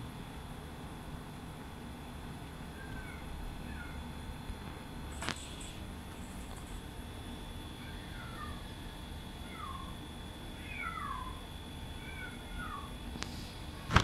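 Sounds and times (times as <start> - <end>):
kitten mewing: 12.0 - 12.9.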